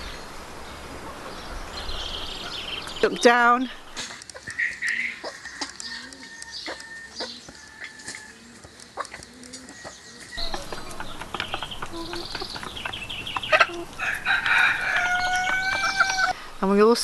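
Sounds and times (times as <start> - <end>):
chicken clucking: 4.2 - 16.4.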